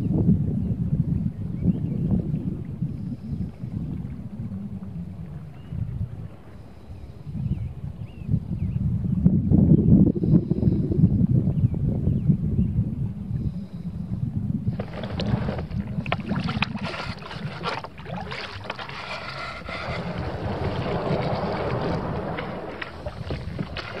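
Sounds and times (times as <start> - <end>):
wind rumbling on microphone: 0.0 - 24.0
kayak paddle splashing water: 14.7 - 24.0.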